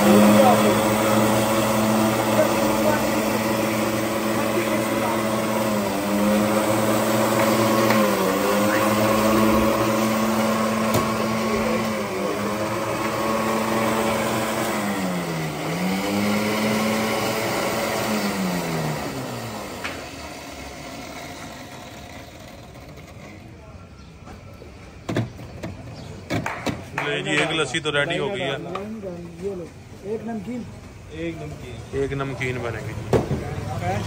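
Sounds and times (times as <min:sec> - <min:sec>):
blender motor humming: 0:00.0 - 0:23.6.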